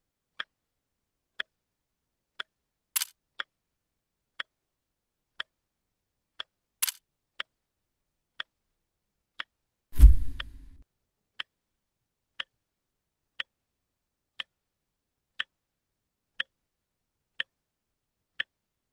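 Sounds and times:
clock ticking: 1.3s - 1.6s, 2.4s - 3.6s, 4.4s - 4.6s, 5.3s - 5.6s, 6.3s - 7.6s, 9.4s - 10.8s, 12.4s - 12.6s, 13.4s - 13.6s, 14.4s - 14.6s, 15.3s - 15.6s, 16.4s - 16.6s, 17.4s - 17.6s, 18.3s - 18.7s.

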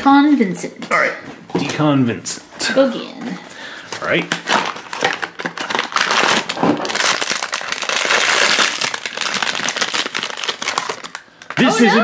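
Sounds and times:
foil bag crinkling and tearing: 4.3s - 11.7s.

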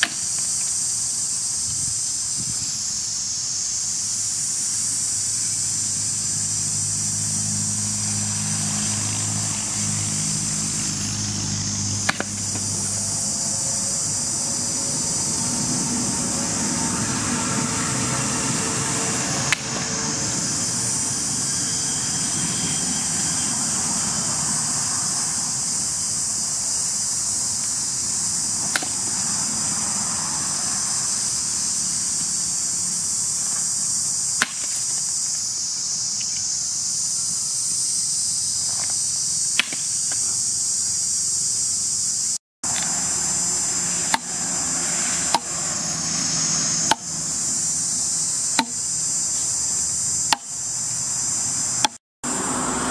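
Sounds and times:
axe chopping wood: 0.0s - 0.4s, 12.0s - 12.7s, 28.6s - 29.0s, 34.4s - 34.9s, 39.6s - 39.9s, 44.1s - 44.4s, 45.3s - 45.5s, 46.8s - 47.1s, 48.6s - 48.8s, 50.3s - 50.5s
insects droning: 0.0s - 52.9s.

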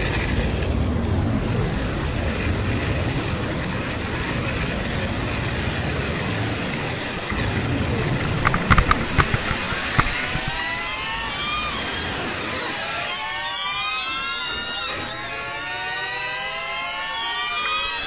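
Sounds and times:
motorcycle engine running: 7.1s - 10.8s
sharp knocks: 8.1s - 10.8s.

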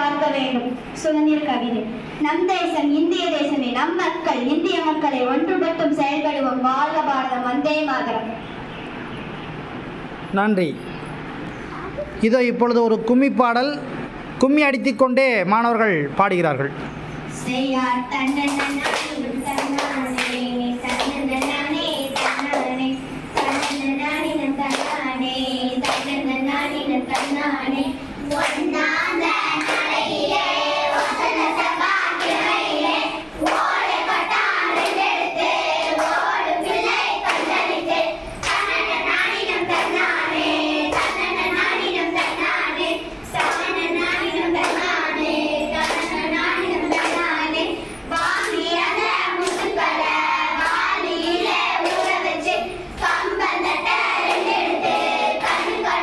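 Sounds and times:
girls singing in unison: 17.4s - 56.0s
rhythmic hand clapping: 17.5s - 56.0s.

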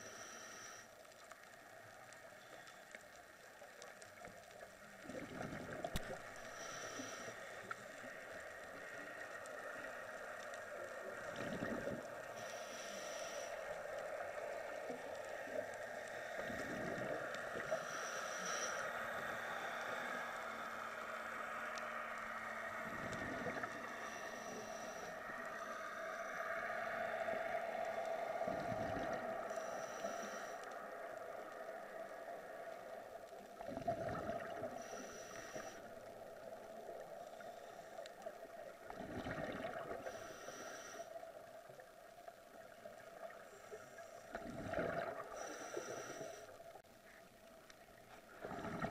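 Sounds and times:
regulator breathing hiss: 0.0s - 1.2s, 6.4s - 8.2s, 12.3s - 16.7s, 17.4s - 21.7s, 23.7s - 28.5s, 29.4s - 31.2s, 34.7s - 38.3s, 40.0s - 41.4s, 45.3s - 46.8s
exhaled bubbles gurgling: 4.8s - 10.0s, 10.8s - 12.4s, 14.2s - 17.8s, 22.2s - 25.5s, 26.6s - 29.7s, 33.4s - 37.5s, 38.2s - 40.6s, 44.3s - 46.8s, 48.2s - 48.9s.

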